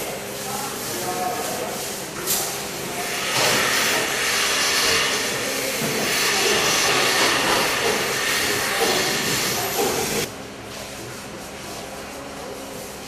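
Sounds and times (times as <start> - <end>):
milking equipment hissing: 0.0 - 10.3.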